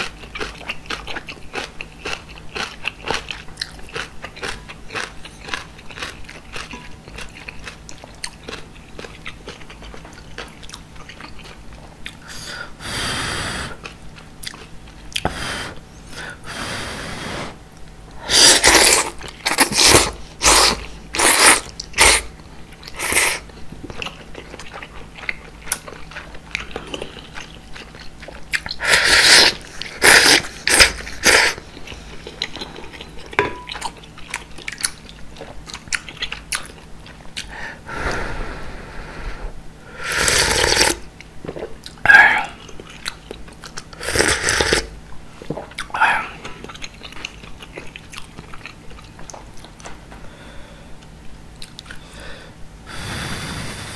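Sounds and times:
soft chewing: 0.0 - 12.2, 13.8 - 15.4, 18.6 - 28.9, 29.6 - 37.5, 40.8 - 44.0, 44.6 - 50.2, 51.0 - 52.1
loud noodle slurps: 18.2 - 22.3, 23.0 - 23.4, 28.8 - 31.6, 40.0 - 41.0, 44.0 - 44.9.

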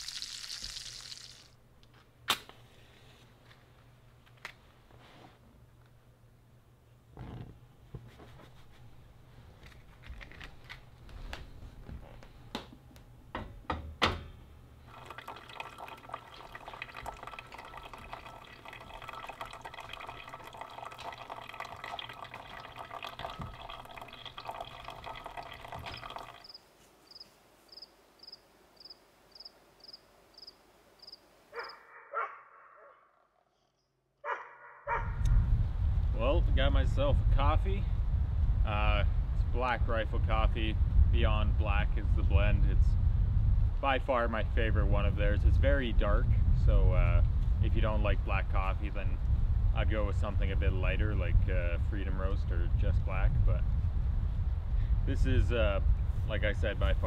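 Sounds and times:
hot water pouring into filter: 0.0 - 1.5, 14.9 - 26.5.

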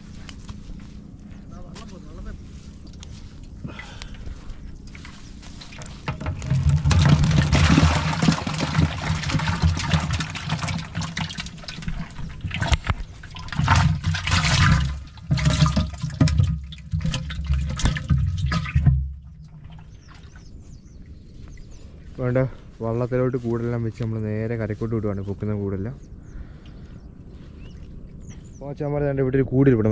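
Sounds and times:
water splashing and pouring: 4.9 - 20.5.

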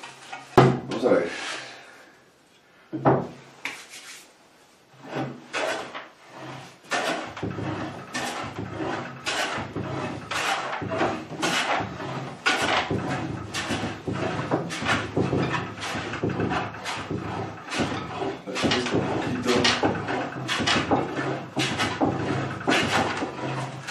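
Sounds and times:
hand plane shaving wood: 5.0 - 23.9.

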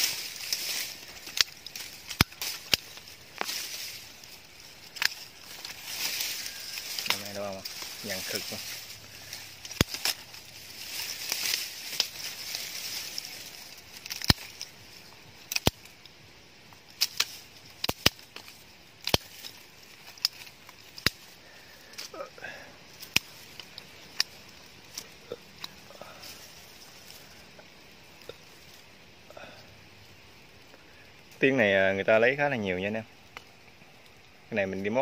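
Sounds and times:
sharp clicks and cracks: 0.0 - 14.8, 15.4 - 22.2, 22.9 - 26.4
hiss: 0.0 - 31.3.

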